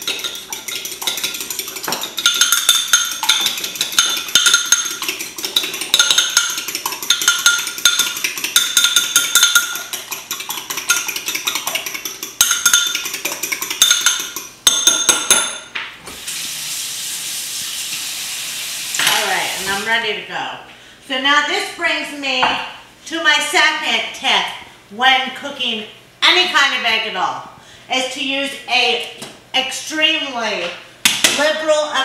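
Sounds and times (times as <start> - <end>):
utensil clinking in bowl: 0.0 - 15.7.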